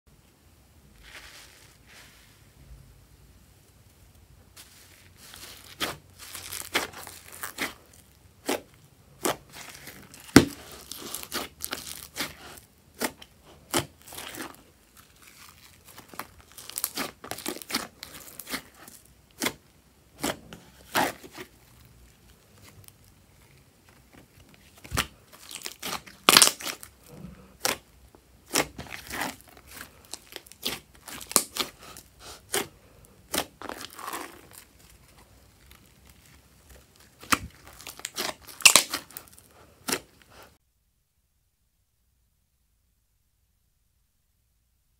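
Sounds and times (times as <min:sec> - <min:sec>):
slime crackling pops: 0:37.2 - 0:39.2.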